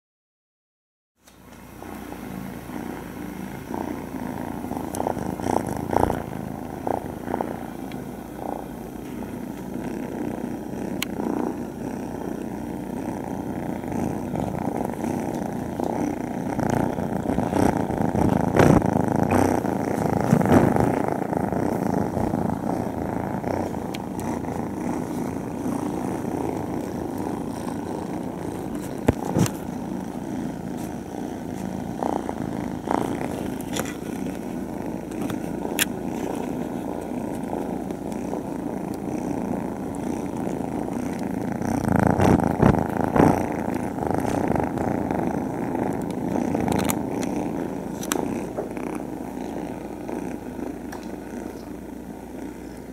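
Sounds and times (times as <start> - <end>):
kittens purring: 1.2 - 52.9.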